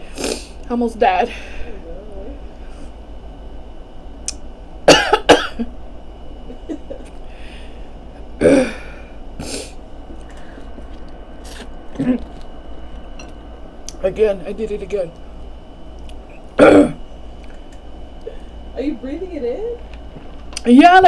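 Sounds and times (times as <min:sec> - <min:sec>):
woman coughing: 0:04.9 - 0:05.7, 0:12.0 - 0:12.3, 0:16.6 - 0:17.0.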